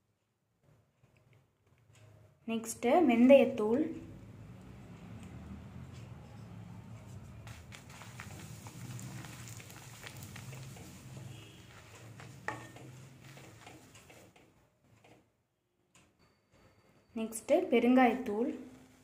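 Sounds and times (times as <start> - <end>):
wooden spatula stirring: 7.0 - 15.2
hot oil sizzling in a pan: 7.9 - 13.9.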